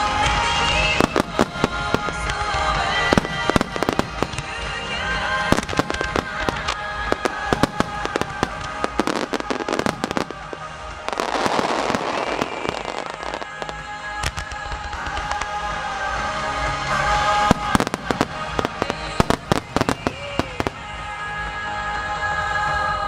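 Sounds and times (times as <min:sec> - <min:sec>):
crackle of firework stars: 0:00.0 - 0:21.4
music: 0:00.0 - 0:23.0.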